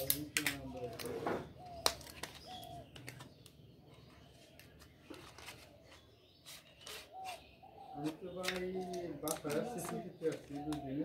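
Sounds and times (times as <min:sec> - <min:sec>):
packaging rustles and clicks: 0:08.0 - 0:10.9.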